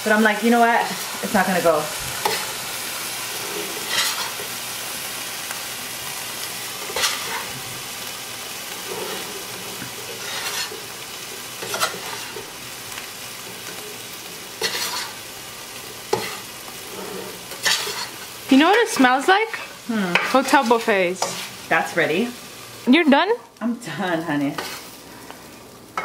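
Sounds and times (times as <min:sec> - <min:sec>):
rice sizzling in skillet: 0:00.0 - 0:26.0
metal spatula scraping pan: 0:02.2 - 0:02.6, 0:03.3 - 0:04.5, 0:06.8 - 0:07.6, 0:08.8 - 0:10.9, 0:11.6 - 0:12.5, 0:14.5 - 0:15.2, 0:16.1 - 0:21.8, 0:24.4 - 0:25.0.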